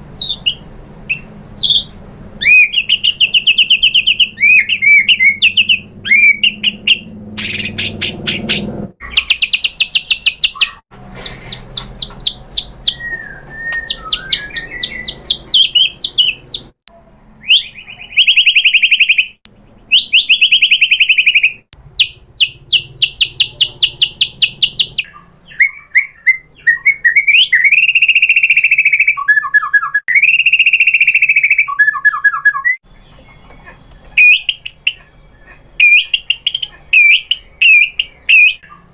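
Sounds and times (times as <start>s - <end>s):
songbird singing trills: 0.1s - 16.8s, 17.4s - 38.9s.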